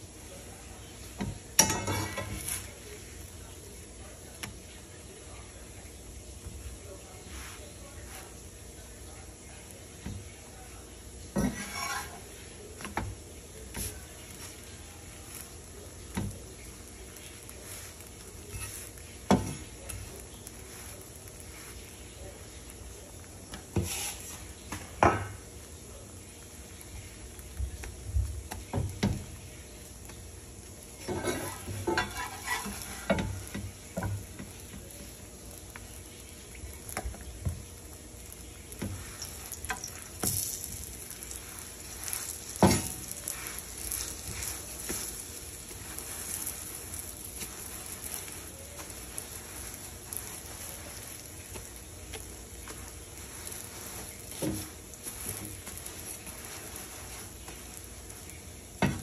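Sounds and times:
flatbread sizzling in a pan: 0.0 - 59.0
metal spatula scraping a pan: 0.6 - 3.1, 11.2 - 22.2, 23.6 - 24.6, 30.8 - 37.2, 38.7 - 59.0.

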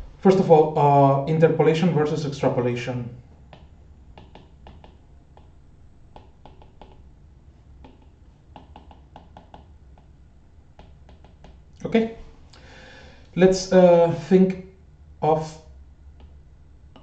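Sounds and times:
stylus tapping on glass screen: 3.5 - 7.0, 7.8 - 10.1, 10.7 - 11.6.

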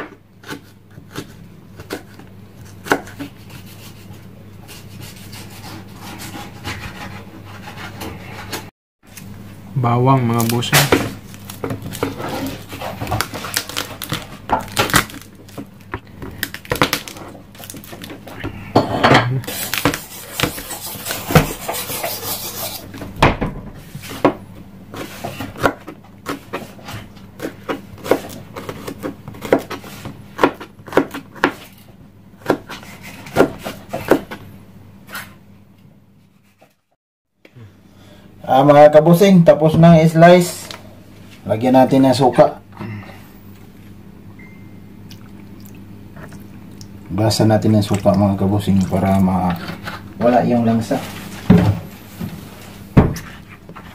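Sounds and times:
knife chopping on cutting board: 0.0 - 4.0, 19.5 - 22.9, 24.2 - 31.7, 32.4 - 34.4
knife scraping board: 0.4 - 8.7, 11.9 - 13.6, 19.5 - 22.9, 32.4 - 34.3.

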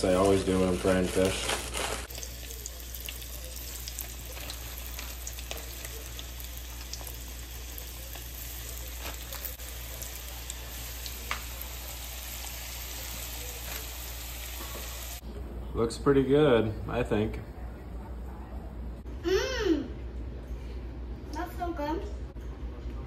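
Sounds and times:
fish frying in hot oil: 0.0 - 15.2.

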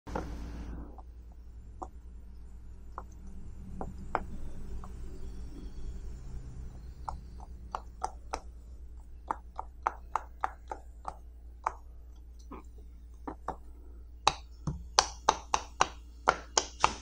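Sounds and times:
fidget toy bubbles popping: 6.7 - 12.6, 13.2 - 17.0.

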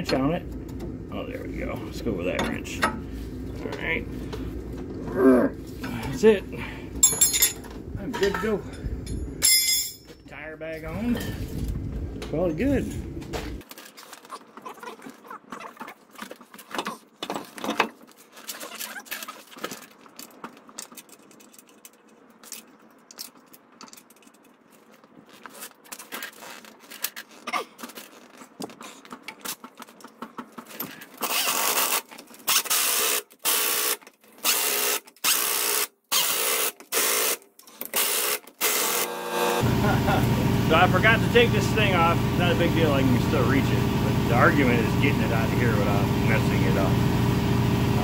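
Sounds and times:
clinks and knocks of wheel nuts: 7.0 - 10.3
impact wrench bursts: 31.2 - 39.7.

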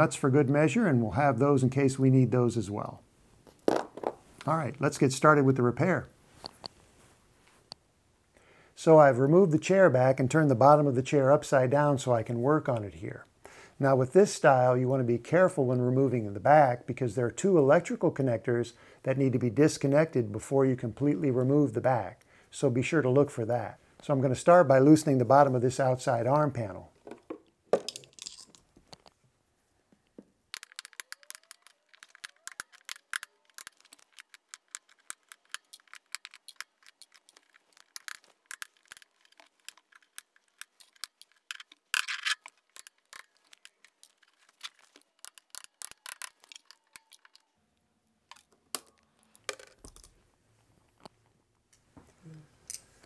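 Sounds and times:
small sharp clicks and snaps: 30.5 - 47.6.

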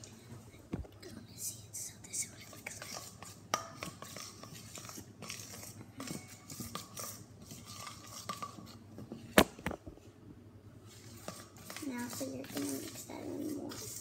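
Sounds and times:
spoon stirring slime in metal bowl: 2.1 - 9.3, 10.8 - 14.0.

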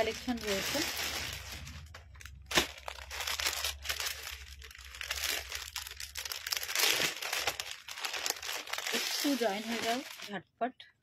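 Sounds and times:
plastic packaging crinkling: 0.0 - 10.4.

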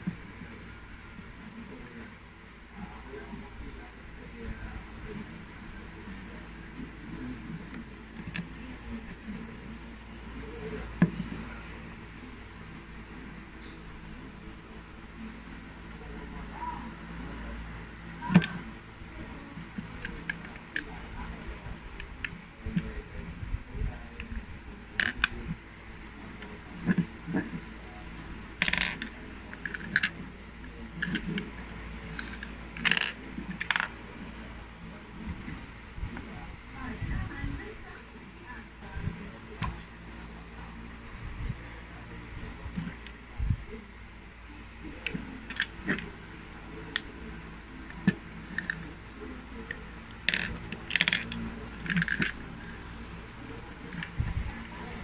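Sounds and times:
plastic parts clicking and clacking: 28.6 - 30.2, 32.1 - 33.9, 50.2 - 52.4
plastic parts rattling: 32.1 - 33.9, 50.2 - 52.4.

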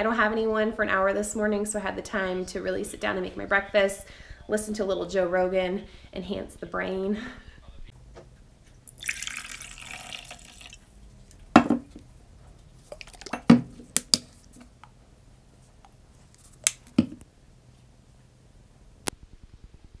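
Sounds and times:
liquid pouring into glass mug: 8.9 - 10.9, 12.9 - 13.6
objects set down on countertop: 11.5 - 12.0, 12.9 - 14.3.

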